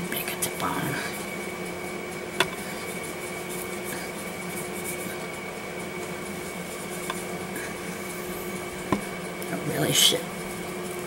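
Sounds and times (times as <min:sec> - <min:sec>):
steady electrical hum: 0:00.0 - 0:11.0
soft rubbing of clay: 0:02.5 - 0:11.0.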